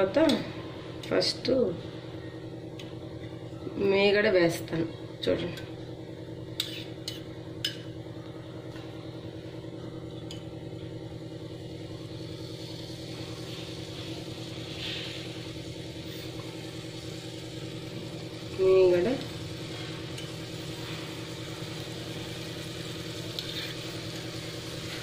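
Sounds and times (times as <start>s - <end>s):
low mechanical hum: 0.0s - 25.0s
cream sizzling in a pan: 6.4s - 7.8s, 10.2s - 25.0s.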